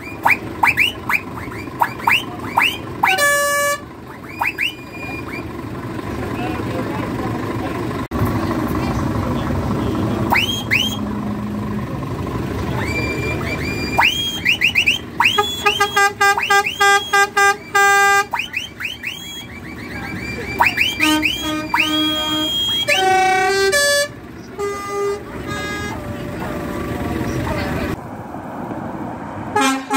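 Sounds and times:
lorry horns tooting: 0.0s - 5.6s, 9.7s - 28.0s, 29.5s - 29.9s
musical horn playing tune: 3.0s - 3.9s, 15.2s - 18.4s, 20.8s - 26.0s, 29.6s - 29.9s.

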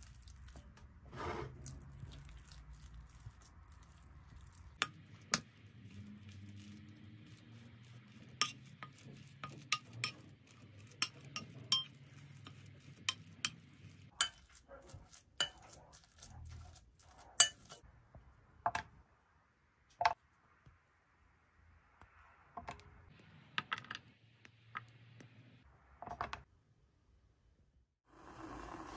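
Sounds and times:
metal spoon scraping glass bowl: 1.1s - 2.5s, 6.3s - 17.8s.

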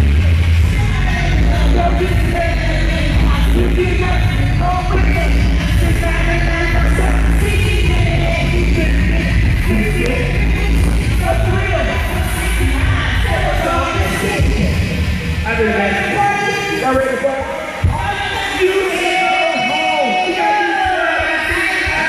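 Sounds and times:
loud bass music through pa: 0.0s - 22.0s
performer's voice: 8.5s - 10.5s.

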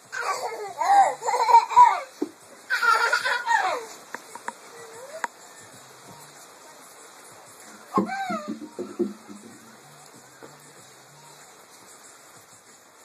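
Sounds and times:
toddler laughing and squealing: 0.1s - 4.0s.

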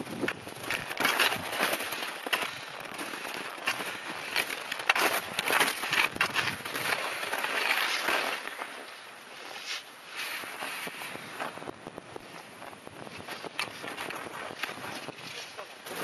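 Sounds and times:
skis sliding through snow: 0.1s - 16.0s.

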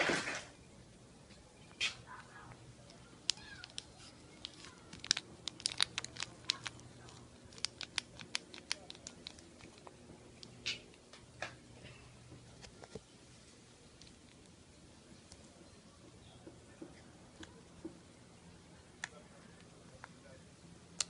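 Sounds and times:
plastic packet crinkling: 3.2s - 10.7s.

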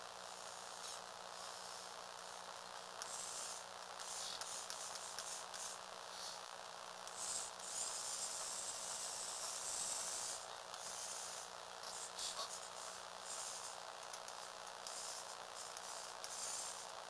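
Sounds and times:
toy car motors whirring: 3.0s - 6.4s, 7.0s - 17.0s.

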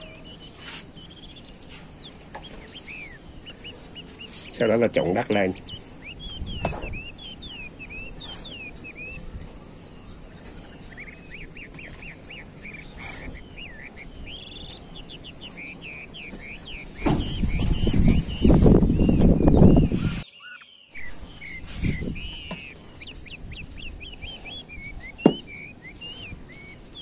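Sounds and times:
small bird chirping: 0.0s - 27.0s
trowel scraping through soil: 0.1s - 1.0s.

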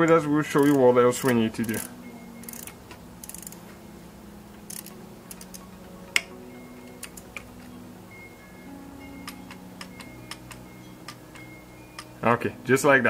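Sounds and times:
sharp metal clicks: 0.0s - 3.6s, 9.2s - 12.2s
ratchet wrench clicking: 0.5s - 3.6s, 4.7s - 5.6s.

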